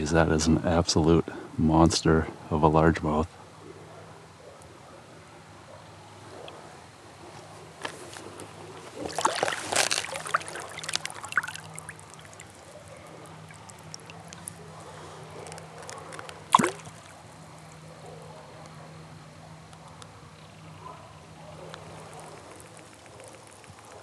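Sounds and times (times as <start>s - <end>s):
fish splashing: 8.6s - 17.3s, 21.7s - 24.0s
water splashing: 8.7s - 17.3s, 21.7s - 24.0s.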